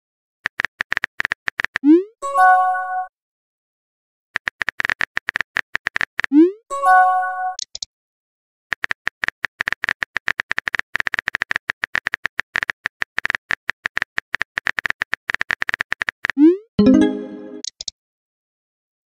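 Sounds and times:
keyboard typing clicks: 0:04.4 - 0:06.4, 0:07.6 - 0:07.9, 0:08.7 - 0:17.9.

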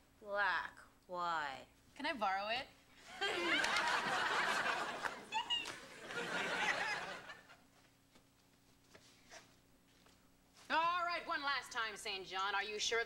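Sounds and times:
audience laughter: 0:03.1 - 0:07.6.

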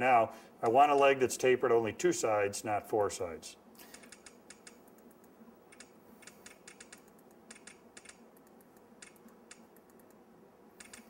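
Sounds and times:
keyboard and mouse clicking: 0:03.8 - 0:10.2, 0:10.8 - 0:11.0.

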